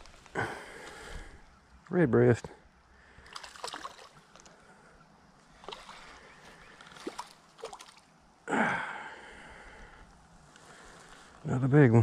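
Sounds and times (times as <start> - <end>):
fish splashing at water surface: 3.2 - 4.3, 5.6 - 6.2, 6.8 - 8.1.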